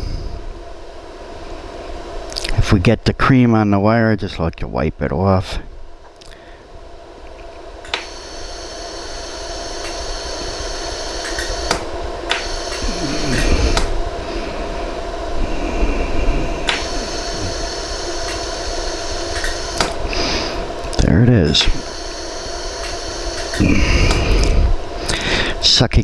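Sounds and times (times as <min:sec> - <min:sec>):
machine hum: 0:00.0 - 0:26.0
laser welder clicks: 0:07.4 - 0:14.0, 0:16.6 - 0:20.0, 0:20.8 - 0:24.3.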